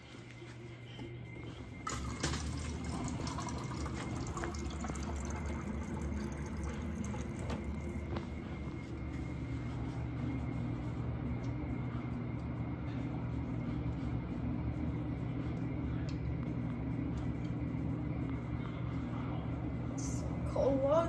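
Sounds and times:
low hum: 0.0s - 21.0s
liquid pouring into cup: 1.8s - 8.3s.

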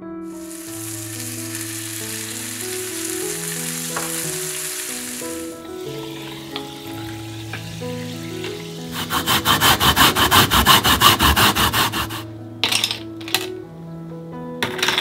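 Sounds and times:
sparkling water pouring: 0.2s - 12.2s
steaks sizzling in a pan: 0.3s - 9.2s
ice clinking: 0.3s - 9.3s, 12.6s - 13.5s.

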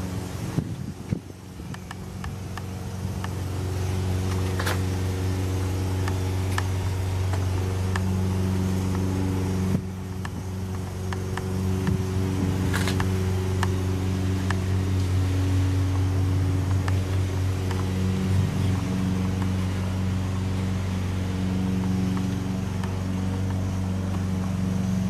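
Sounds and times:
low mechanical hum: 0.0s - 25.0s
light clicks: 1.1s - 3.4s.

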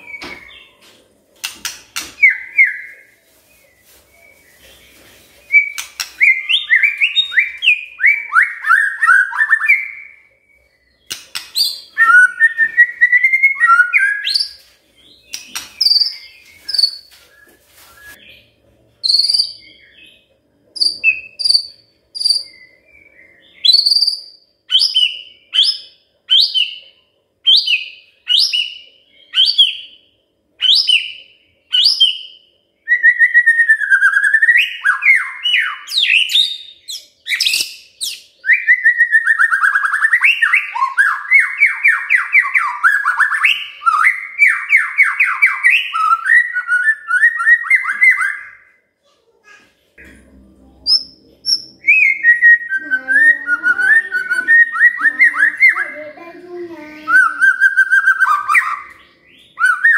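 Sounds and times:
bird singing whistled phrases: 5.5s - 14.6s, 15.2s - 18.4s, 19.0s - 20.2s, 20.8s - 26.8s, 30.6s - 48.8s, 50.9s - 56.1s, 57.0s - 59.9s.

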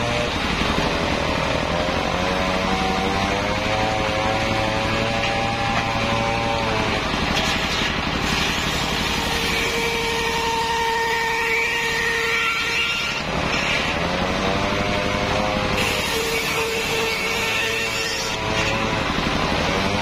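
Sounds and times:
stationary engine running: 0.0s - 10.5s
circular saw cutting log: 0.0s - 20.0s.

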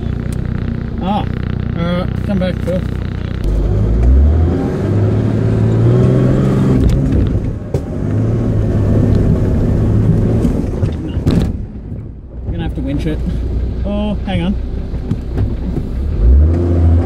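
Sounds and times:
engine working hard: 0.0s - 11.5s.

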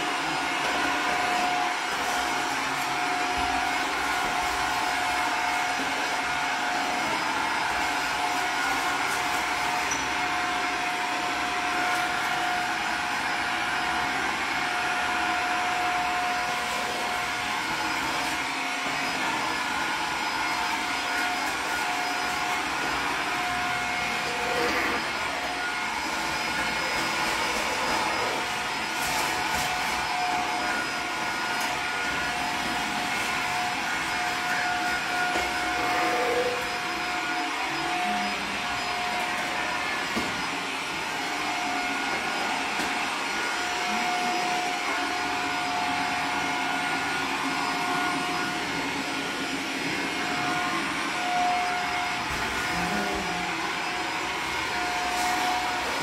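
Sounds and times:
vacuum cleaner running: 0.0s - 56.0s.

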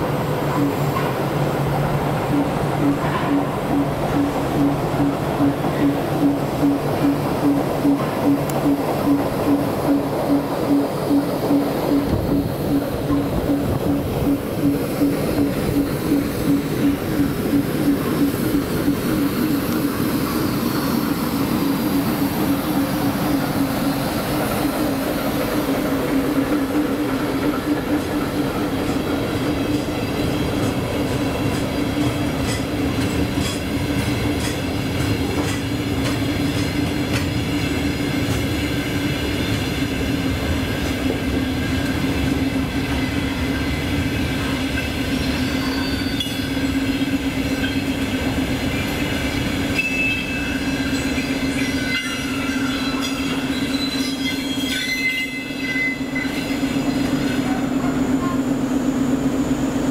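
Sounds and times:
train rumble and hum: 0.0s - 59.9s
wheels clicking over rail joints: 25.5s - 38.5s
high-pitched wheel squeals: 45.1s - 48.0s, 49.6s - 57.5s.

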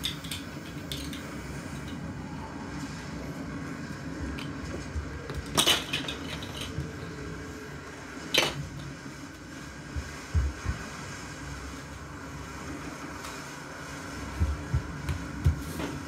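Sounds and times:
small hard toys clattering: 0.0s - 2.0s, 5.4s - 6.9s
soft low thumps: 14.3s - 15.7s.

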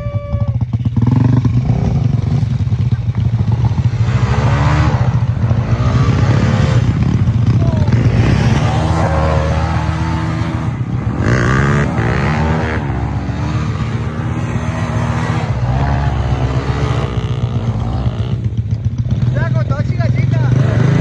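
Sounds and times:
dirt bike engines revving: 0.0s - 21.0s.

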